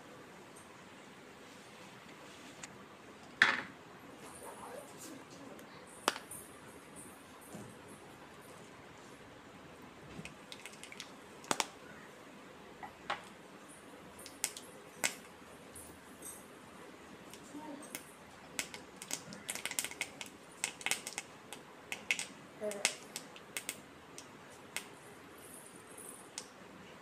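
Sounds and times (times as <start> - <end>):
hot oil crackling and spitting: 17.3 - 25.0.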